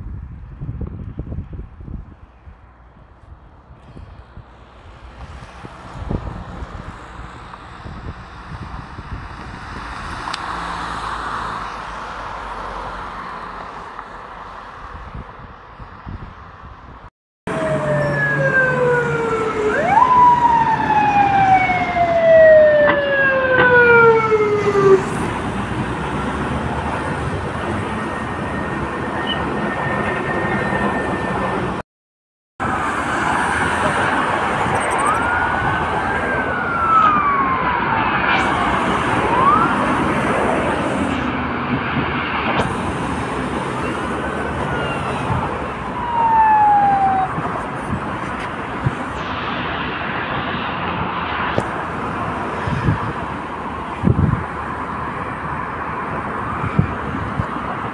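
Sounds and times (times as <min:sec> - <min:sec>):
traffic noise: 0:00.0 - 0:31.8, 0:32.6 - 0:57.9
police sirens wailing: 0:17.5 - 0:31.8, 0:32.6 - 0:54.1.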